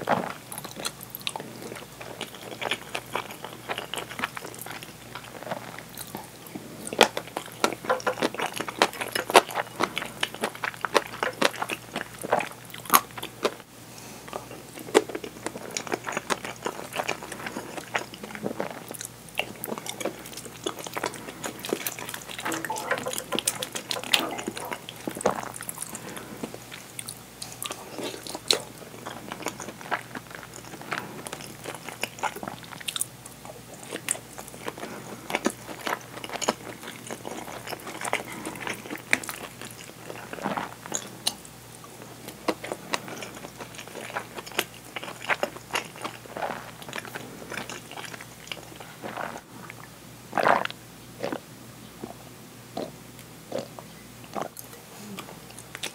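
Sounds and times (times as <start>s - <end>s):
chewing and crunching: 0.0s - 51.4s, 52.0s - 55.9s
wooden spoon scraping a bowl: 21.4s - 25.4s.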